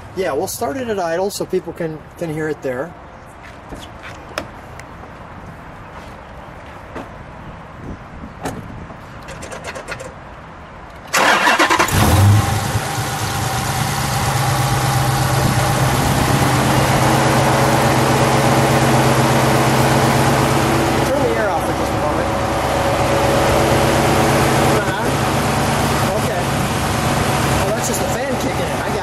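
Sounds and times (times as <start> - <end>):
engine cranking: 11.1 - 12.8
car engine idling: 11.2 - 29.0.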